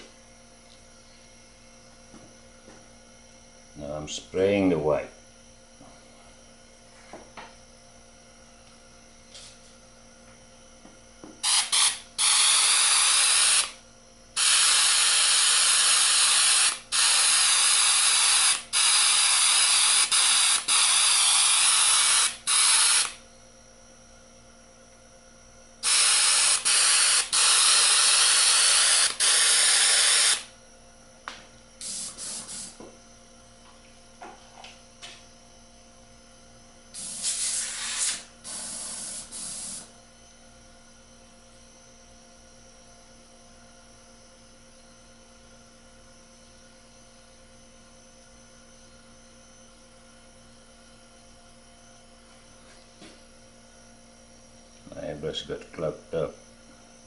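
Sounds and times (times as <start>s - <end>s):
airbrush spraying hiss: 31.8s - 32.8s, 37.0s - 39.9s.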